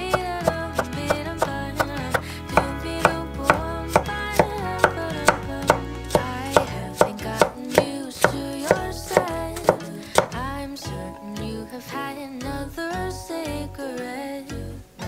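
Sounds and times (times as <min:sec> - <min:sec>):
knife chopping on wooden board: 0:00.1 - 0:10.4.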